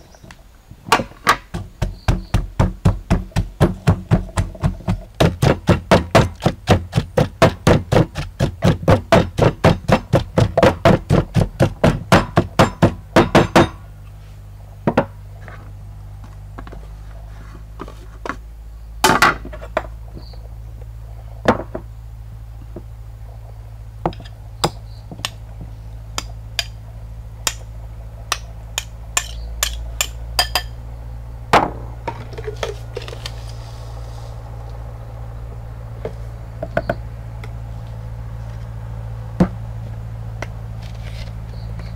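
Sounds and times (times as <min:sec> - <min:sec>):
pestle pounding in wooden mortar: 0:01.0 - 0:13.8.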